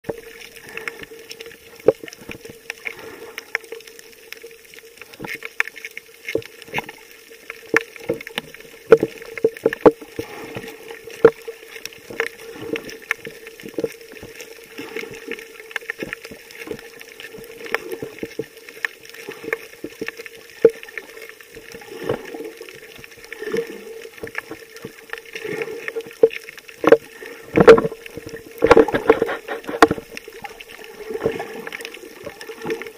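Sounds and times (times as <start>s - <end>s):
faint underwater hum: 0.0s - 32.9s
water gurgling: 0.0s - 32.9s
heavy knocks and sloshes: 26.8s - 30.2s.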